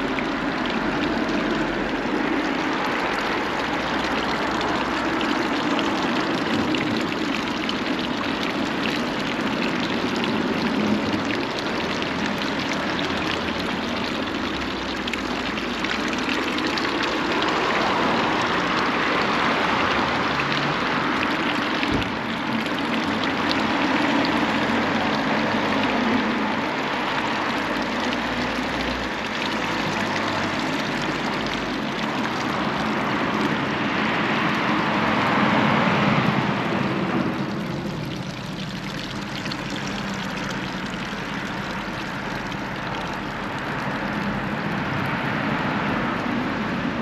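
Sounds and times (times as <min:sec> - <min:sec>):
fountain water splashing: 0:00.0 - 0:47.0.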